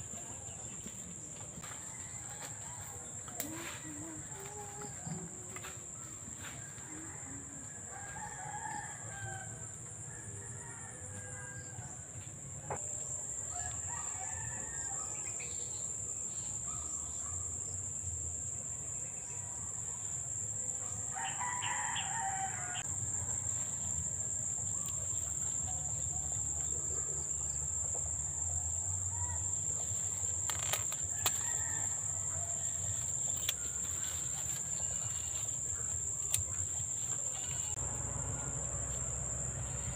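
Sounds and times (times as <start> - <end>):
rooster crowing: 1.6 - 3.2, 6.4 - 12.0, 21.1 - 23.4, 31.1 - 35.5, 37.2 - 39.9.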